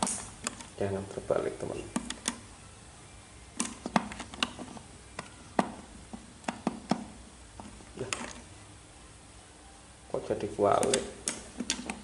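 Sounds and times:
sharp plastic clicks and taps: 1.9s - 2.4s, 6.4s - 7.1s, 10.8s - 12.0s.

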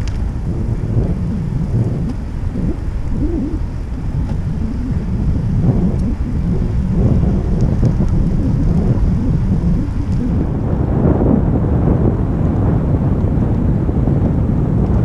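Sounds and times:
faint light ticks: 0.0s - 0.3s
wind buffeting microphone: 0.0s - 15.0s.

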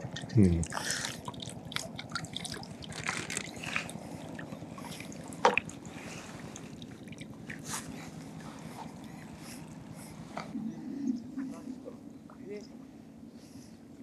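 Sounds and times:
water dripping and splashing: 1.0s - 3.9s.

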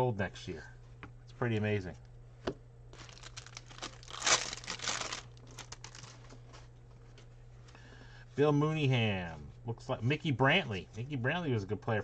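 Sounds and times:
wax-paper wrapper tearing and crinkling: 3.0s - 6.4s.

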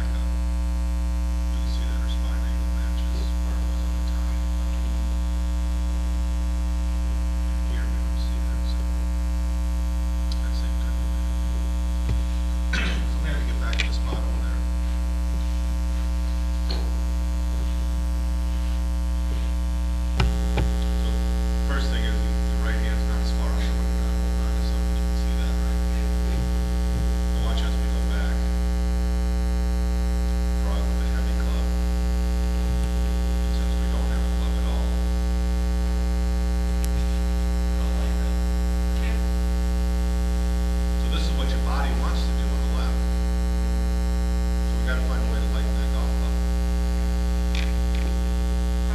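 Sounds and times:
electrical mains hum: 0.0s - 48.9s.

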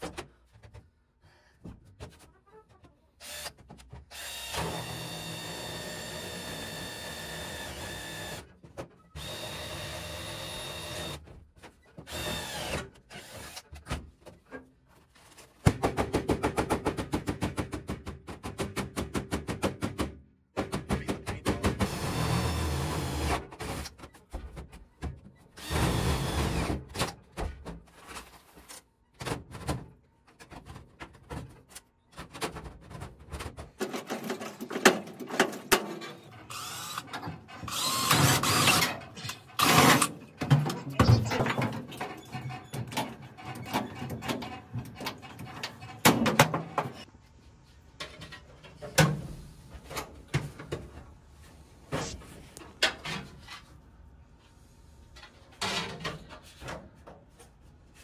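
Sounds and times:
cordless drill drilling metal: 4.1s - 8.4s, 9.2s - 11.2s, 12.1s - 13.6s, 25.6s - 26.7s, 36.2s - 40.2s.

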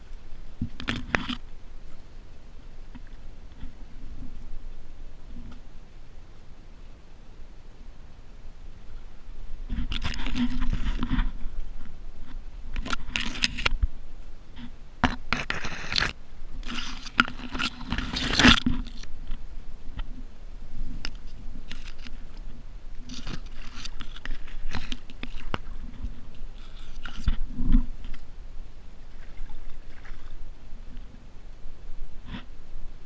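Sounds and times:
leaves and branches scraping: 15.3s - 19.4s, 20.8s - 28.3s.

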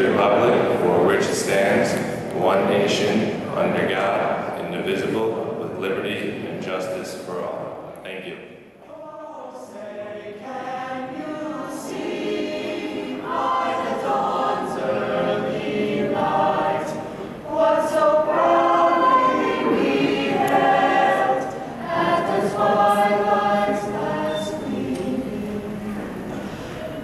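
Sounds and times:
choir singing in unison: 8.8s - 27.0s.

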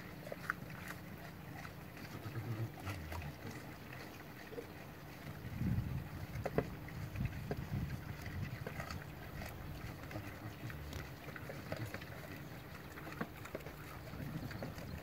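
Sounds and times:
animals chewing and rooting: 0.0s - 15.0s
low steady rumble: 0.0s - 15.0s.

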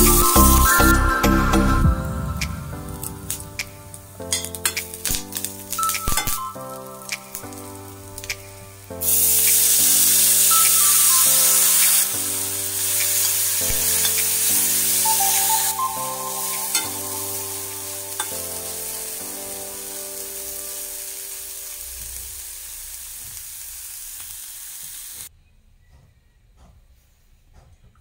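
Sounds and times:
soft background music: 0.0s - 22.2s
beans sizzling in hot oil: 3.3s - 25.3s.

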